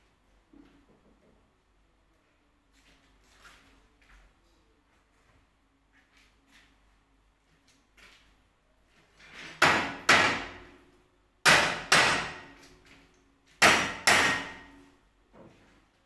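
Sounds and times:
hammer blows ringing: 0:11.4 - 0:12.5, 0:13.6 - 0:14.8.

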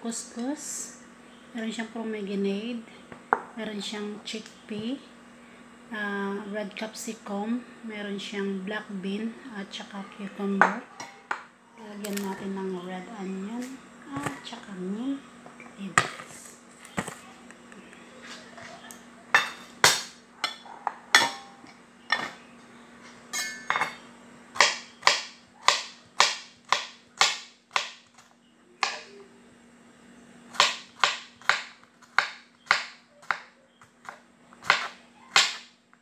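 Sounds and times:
knife chopping on wooden board: 0:24.6 - 0:28.0, 0:30.6 - 0:35.7.

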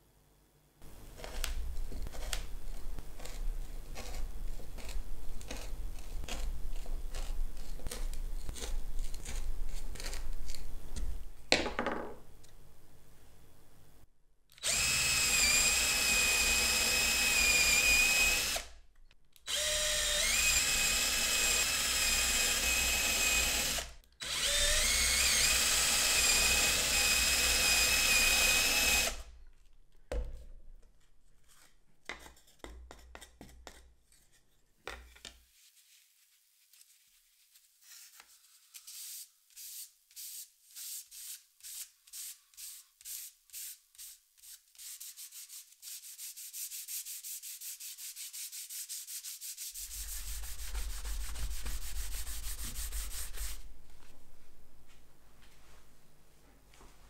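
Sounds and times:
electric drill boring wood: 0:14.6 - 0:18.7, 0:19.5 - 0:29.2
sandpaper rubbing on wood: 0:37.5 - 0:53.7.

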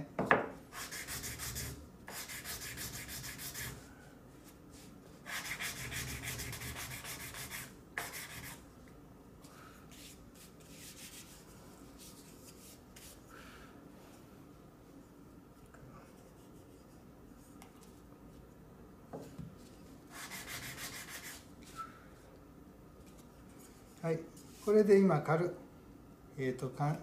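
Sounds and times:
sandpaper rubbing on wood: 0:00.8 - 0:03.8, 0:05.2 - 0:08.6, 0:20.1 - 0:21.4.

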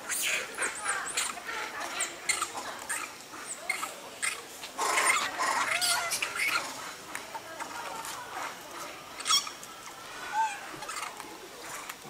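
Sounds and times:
macaques squeaking and calling: 0:00.0 - 0:06.9, 0:09.2 - 0:11.2
monkeys scuffling: 0:00.0 - 0:12.0.

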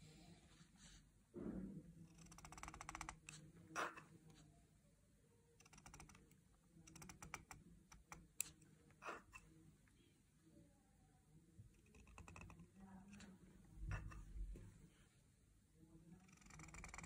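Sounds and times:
pen nib scratching paper: 0:02.0 - 0:04.4, 0:05.6 - 0:09.4, 0:11.8 - 0:14.4, 0:16.2 - 0:17.0.

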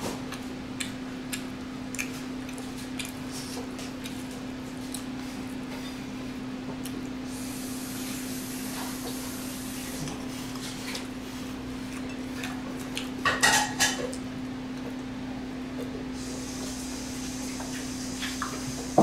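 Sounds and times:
cutlery clinking against dish: 0:13.3 - 0:14.1.

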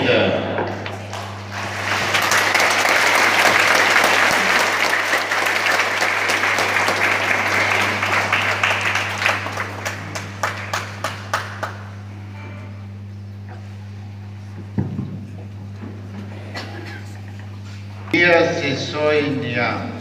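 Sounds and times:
crowd applauding: 0:01.0 - 0:12.2.

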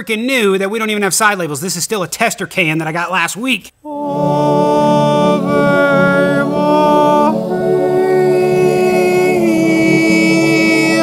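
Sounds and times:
choir singing sustained chord: 0:03.9 - 0:11.0.

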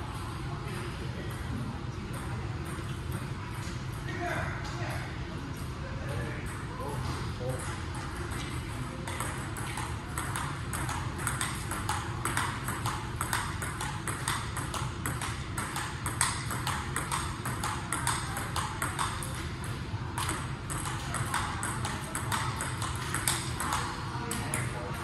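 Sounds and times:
ping pong ball ticking: 0:07.6 - 0:24.8.

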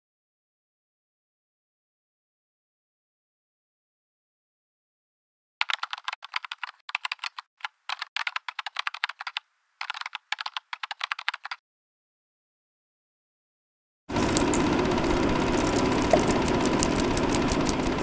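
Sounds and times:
keyboard typing clicks: 0:05.6 - 0:11.6, 0:14.2 - 0:18.0.

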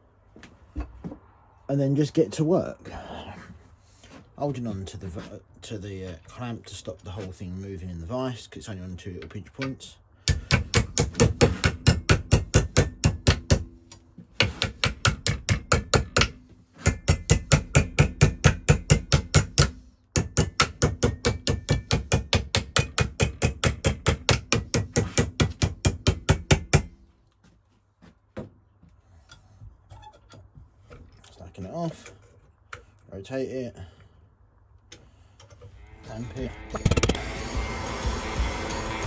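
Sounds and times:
hammer beating copper plate: 0:10.3 - 0:13.8, 0:14.4 - 0:26.9, 0:36.7 - 0:39.0.

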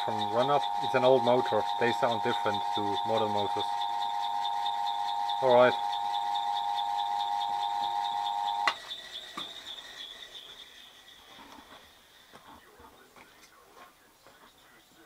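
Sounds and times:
high whir: 0:00.0 - 0:12.2
electric motor humming: 0:00.0 - 0:12.3.

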